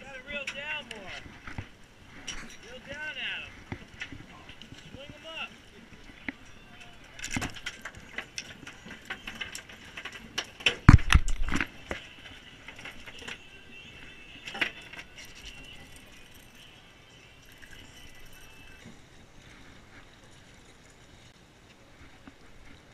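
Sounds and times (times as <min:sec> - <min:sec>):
fishing tackle clicks and rattles: 0:05.8 - 0:18.9, 0:19.6 - 0:21.3.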